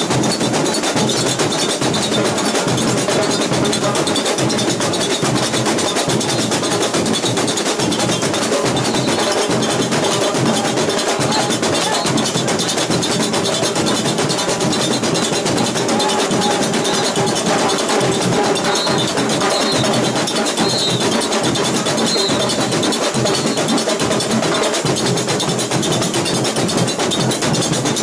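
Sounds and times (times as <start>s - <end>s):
bass drums: 0.0s - 28.0s
samba drumming: 0.0s - 28.0s
tamborims: 0.1s - 24.0s.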